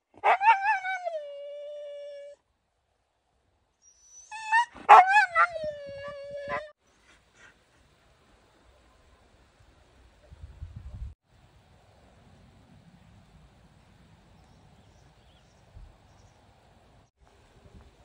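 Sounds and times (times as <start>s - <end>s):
dog howling: 4.3s - 6.7s.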